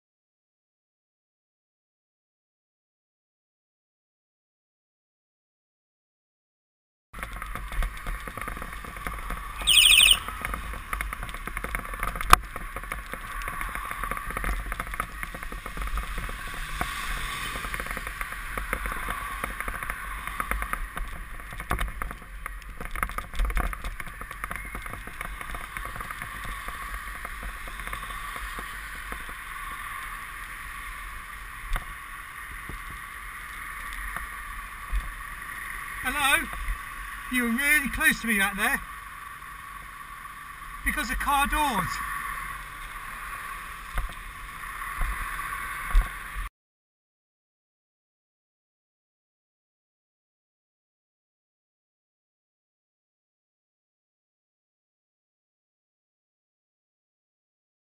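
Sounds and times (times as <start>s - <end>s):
tyres on wet road: 7.2s - 46.5s
shrill bicycle horn blast: 9.6s - 10.3s.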